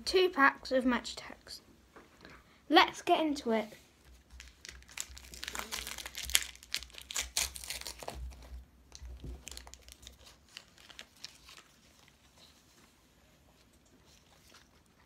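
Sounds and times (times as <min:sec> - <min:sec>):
foil wrapper tearing and crinkling: 0:04.4 - 0:08.4, 0:09.4 - 0:12.1.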